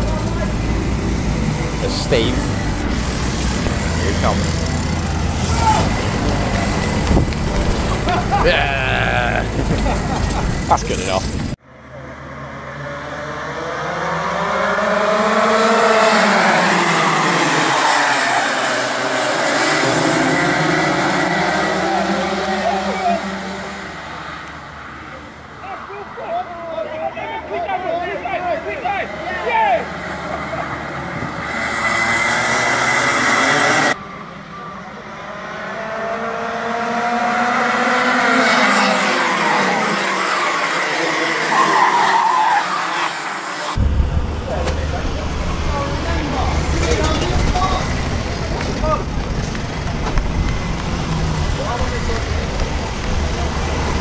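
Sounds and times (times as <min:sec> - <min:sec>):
kart engines revving together: 0:00.0 - 0:11.6, 0:12.2 - 0:24.9, 0:28.9 - 0:34.0, 0:35.0 - 0:43.8.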